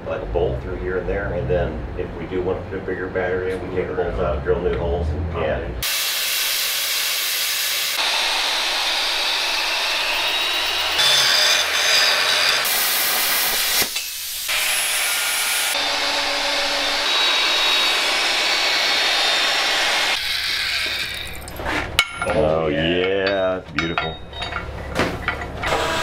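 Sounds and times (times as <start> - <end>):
plasma cutter hissing: 5.8 - 10.0, 12.7 - 15.7.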